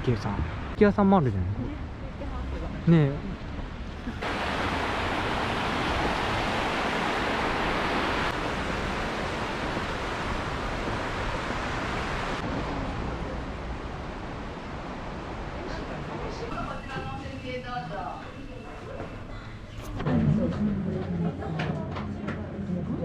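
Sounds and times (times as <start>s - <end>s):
river flowing over stones: 4.2s - 12.4s.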